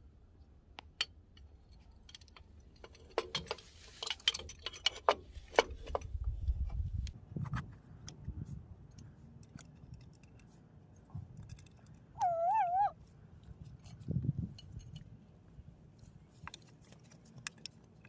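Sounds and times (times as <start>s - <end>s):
metal clicks and clinks: 1.0s - 6.1s, 8.9s - 10.6s, 11.3s - 12.2s, 13.6s - 15.1s.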